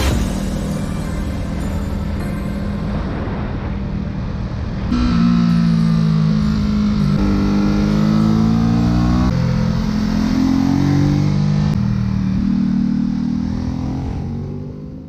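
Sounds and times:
motorcycle engine accelerating: 3.2 - 15.0.

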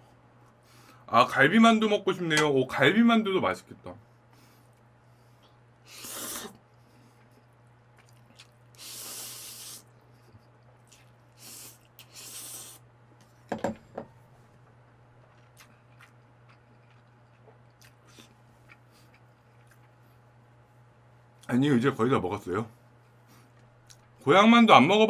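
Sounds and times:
person slurping noodles: 5.9 - 6.6, 8.8 - 9.9, 11.4 - 12.8.

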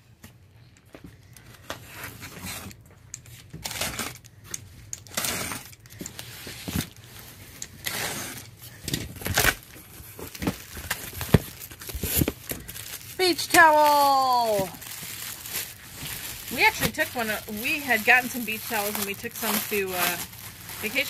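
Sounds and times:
knife slitting packing tape: 3.6 - 4.2, 5.0 - 6.7, 7.7 - 8.6
cardboard flaps tearing open: 9.1 - 13.0.

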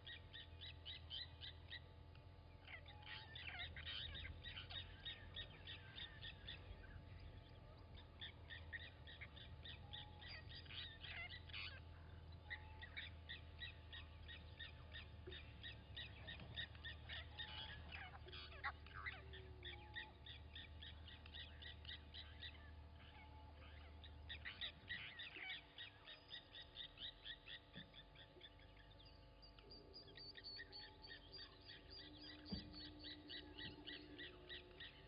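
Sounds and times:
bird metallic alarm calls: 8.2 - 28.9.

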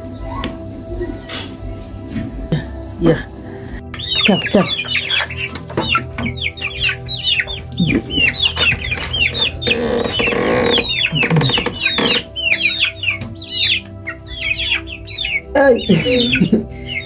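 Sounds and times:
chicks peeping: 0.0 - 17.0
chicken clucks: 4.0 - 16.4.

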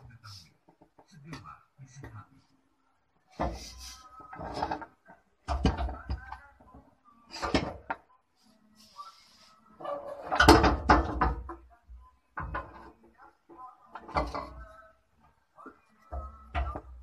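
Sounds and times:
metal clunks and scrapes: 3.3 - 6.4, 7.3 - 8.0, 9.8 - 11.6, 12.4 - 13.1, 13.9 - 14.8, 15.7 - 17.0.

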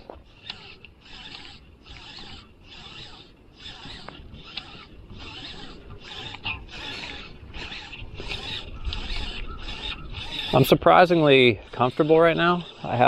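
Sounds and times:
fishing reel whirring: 0.0 - 13.0.

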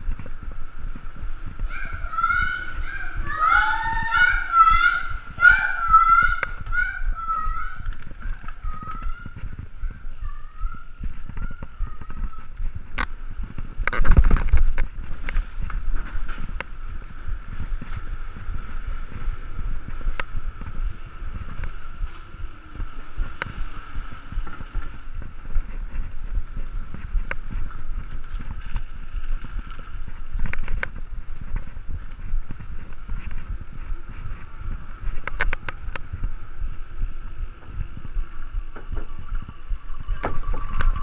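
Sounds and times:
mountain bike rattling rumble: 0.0 - 10.1, 10.9 - 41.0.

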